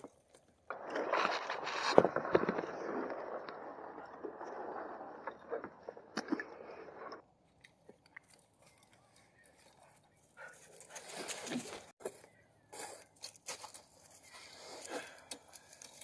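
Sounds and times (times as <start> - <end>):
kayak scraping and rustling: 0.0 - 7.2, 10.5 - 16.0
water sloshing against rocks: 0.0 - 8.6.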